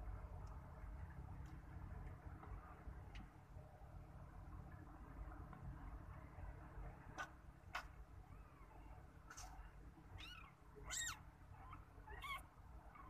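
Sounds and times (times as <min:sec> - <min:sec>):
kitten mewing: 0:10.2 - 0:12.4.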